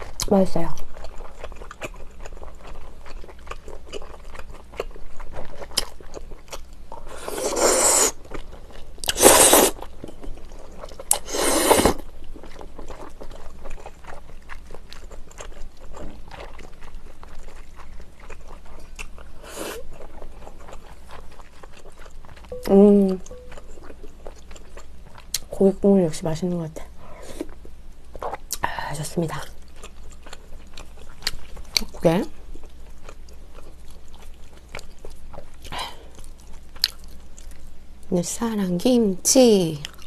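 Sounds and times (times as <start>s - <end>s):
soft chewing clicks: 0.0s - 7.1s, 12.2s - 25.5s, 29.3s - 38.1s, 39.8s - 40.0s
slurping noodles: 7.1s - 8.2s, 9.0s - 9.8s, 11.1s - 12.0s.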